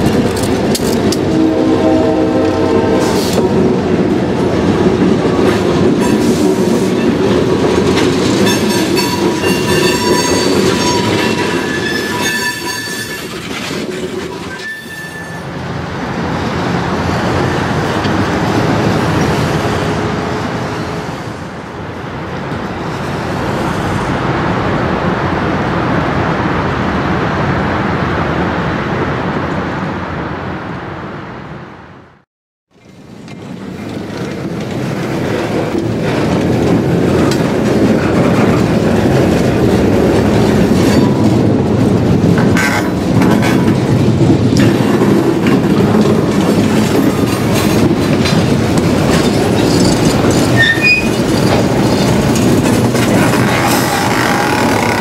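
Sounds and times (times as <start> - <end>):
railcar mover engine: 0.0 - 55.0
train wheel squeal: 8.4 - 13.6, 14.3 - 15.6, 49.2 - 52.2
rolling wheels: 32.8 - 55.0.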